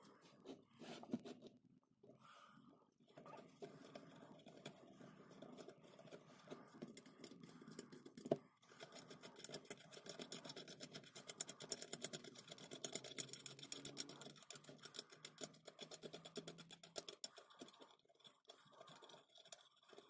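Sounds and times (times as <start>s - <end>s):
faint scraping and handling: 0.0s - 15.4s.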